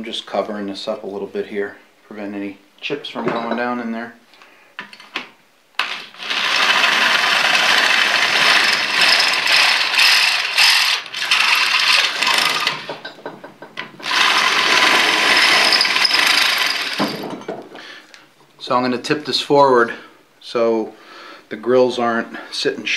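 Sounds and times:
electric drill drilling metal: 5.8s - 13.1s, 14.0s - 17.2s.

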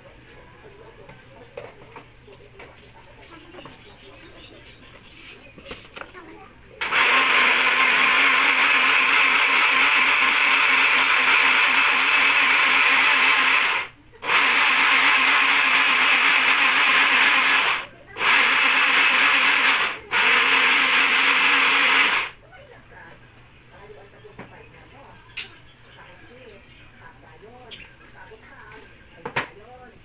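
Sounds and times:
blender motor running: 6.8s - 22.4s.

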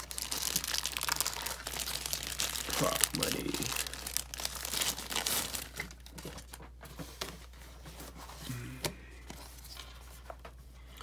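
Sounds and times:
plastic mailer rustling: 0.0s - 8.2s.

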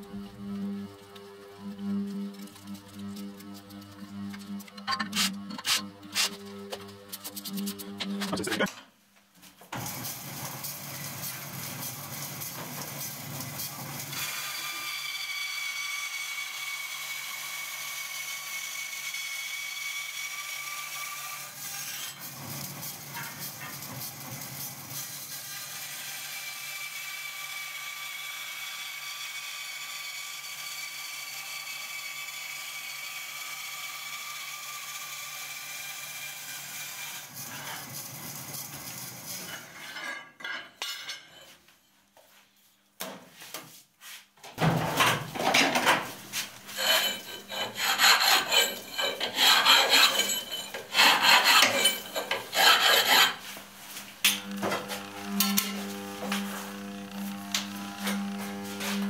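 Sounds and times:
bandsaw cutting aluminium: 0.0s - 8.7s, 9.8s - 41.4s, 44.6s - 59.0s
hand file rasping on metal: 4.8s - 6.4s, 46.3s - 53.6s.

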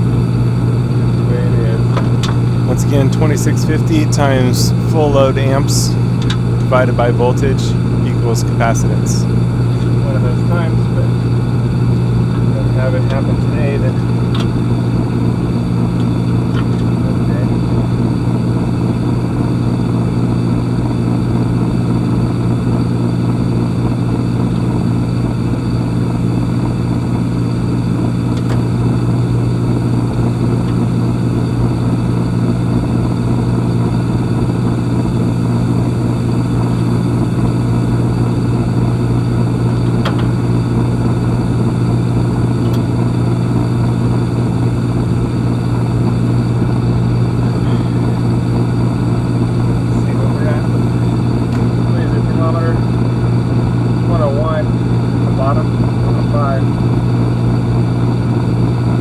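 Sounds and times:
air conditioner motor hum: 0.0s - 59.0s.

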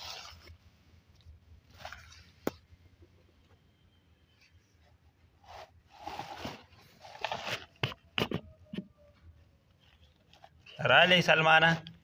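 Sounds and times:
plastic bag rustling: 5.4s - 7.8s.

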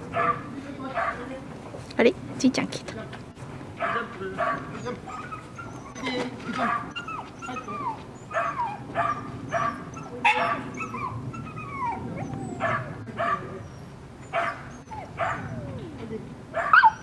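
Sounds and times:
dog barking: 0.1s - 1.3s, 3.8s - 7.6s, 8.3s - 11.2s, 12.6s - 13.6s, 14.3s - 15.6s, 16.6s - 17.0s.

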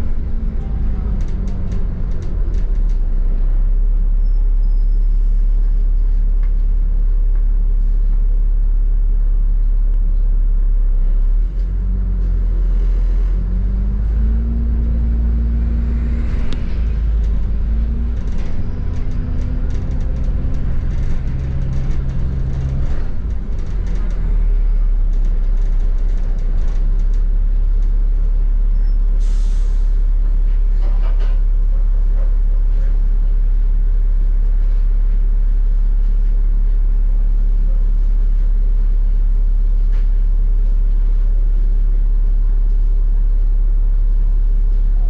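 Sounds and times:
bus engine and road rumble: 0.0s - 45.0s
light rattles: 14.4s - 27.4s.

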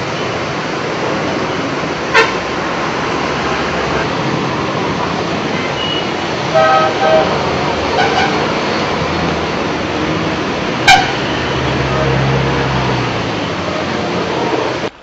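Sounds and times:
floodwater rushing: 0.0s - 15.0s
vehicle horn honking: 2.1s - 2.4s, 5.7s - 8.4s, 10.8s - 12.7s.

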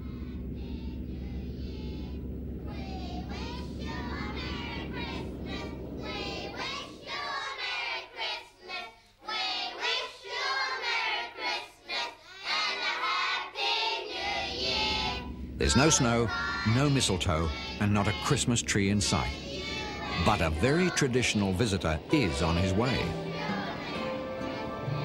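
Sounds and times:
low rumble: 0.0s - 7.8s, 14.0s - 25.0s
children singing: 0.0s - 25.0s.

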